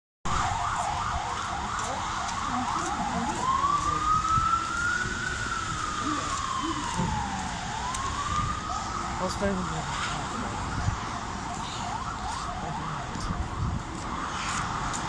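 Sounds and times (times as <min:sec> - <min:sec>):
emergency vehicle siren: 0:00.3 - 0:15.0.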